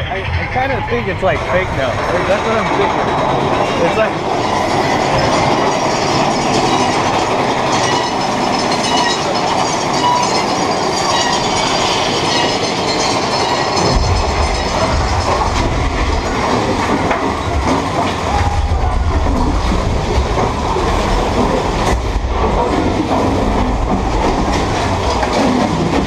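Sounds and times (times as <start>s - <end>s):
deep rumble: 0.0s - 7.7s, 13.7s - 26.0s
roller coaster cars rattling: 0.0s - 26.0s.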